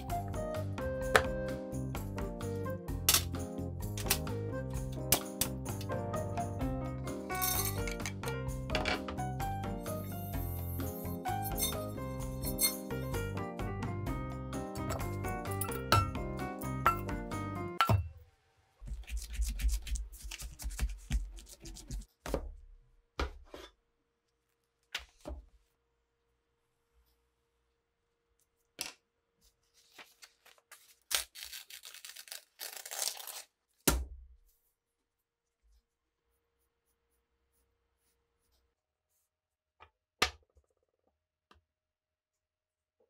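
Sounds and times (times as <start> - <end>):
paper rustling and crackling: 29.5 - 33.6
paper tearing: 29.8 - 33.7.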